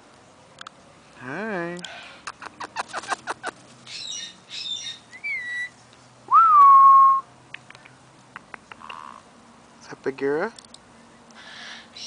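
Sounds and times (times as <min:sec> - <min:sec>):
parrot squawking and whistling: 0:03.9 - 0:05.8.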